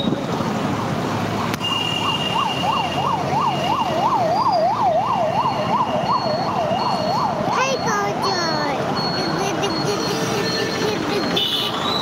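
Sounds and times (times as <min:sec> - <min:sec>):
electronic siren warbling: 0:02.4 - 0:07.9
faint high steady beep: 0:06.2 - 0:11.5.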